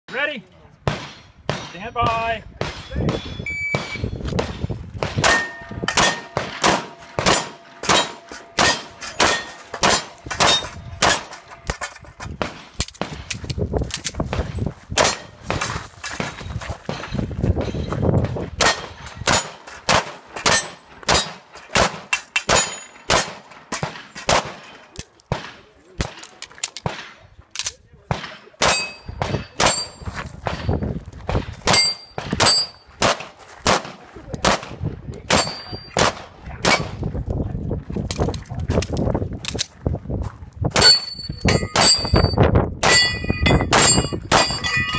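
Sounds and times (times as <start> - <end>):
pistol shots: 0.8 - 1.9, 2.6 - 13.4, 14.3 - 17.0, 18.6 - 27.2, 28.1 - 30.7, 31.3 - 37.0
steel targets clanging: 5.2 - 12.9, 15.0 - 26.4, 28.2 - 30.9, 31.6 - 32.9, 35.2 - 36.0, 40.8 - 44.9.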